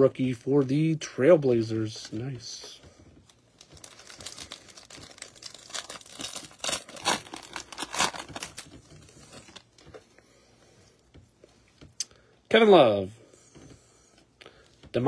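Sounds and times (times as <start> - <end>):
foil wrapper tearing and crumpling: 3.6 - 9.6.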